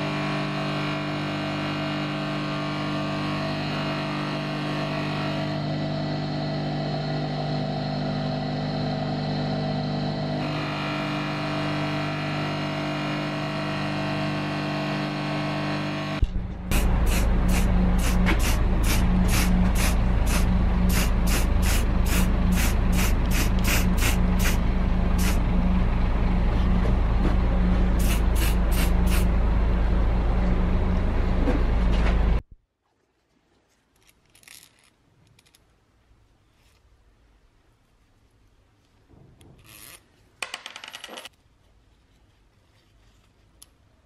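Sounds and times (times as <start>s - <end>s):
low rumble and hum: 16.2s - 32.6s
spray paint can hissing: 16.7s - 24.6s, 25.2s - 25.4s, 28.0s - 29.3s.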